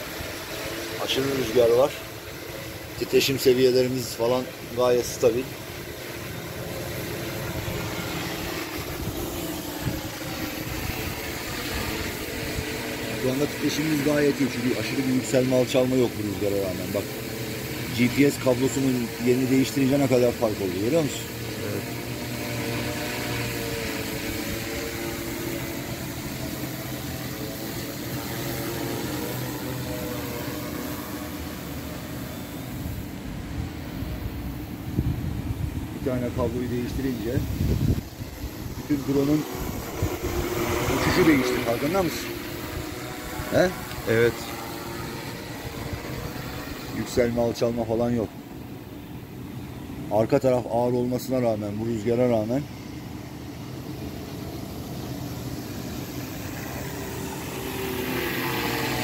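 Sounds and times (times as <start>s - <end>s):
drone propellers humming: 0.0s - 59.0s
wind buffeting microphone: 7.3s - 13.1s, 32.8s - 47.0s.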